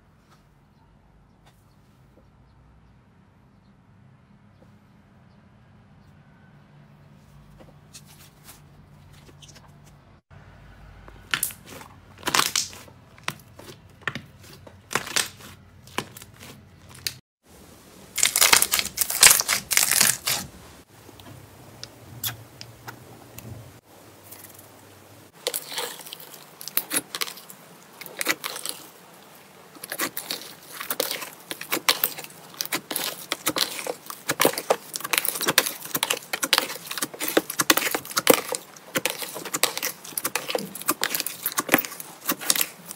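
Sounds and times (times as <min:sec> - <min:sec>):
slime squeezed with sticky crackles: 0:11.3 - 0:17.2, 0:18.2 - 0:20.5, 0:25.3 - 0:42.9.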